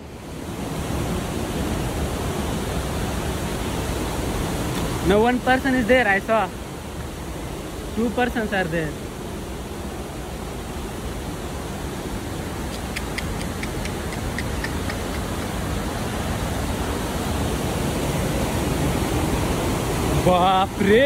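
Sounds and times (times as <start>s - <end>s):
waterfall roaring: 0.0s - 21.0s
faint high ticks: 12.7s - 15.5s.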